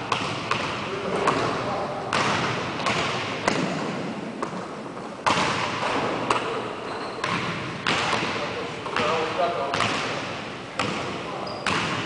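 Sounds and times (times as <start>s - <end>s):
basketball bouncing on wooden floor: 0.1s - 1.5s, 10.8s - 12.0s.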